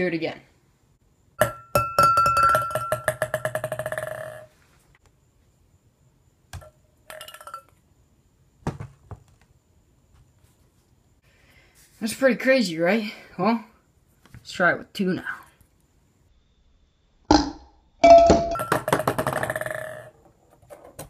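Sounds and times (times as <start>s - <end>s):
glass clinking: 1.4s - 4.2s, 7.1s - 7.7s, 18.0s - 20.0s
ping pong ball bouncing in glass: 1.4s - 4.5s, 17.3s - 20.1s.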